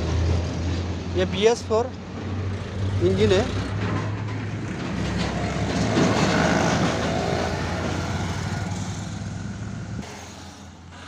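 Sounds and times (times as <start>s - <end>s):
engine humming steadily: 0.0s - 11.0s.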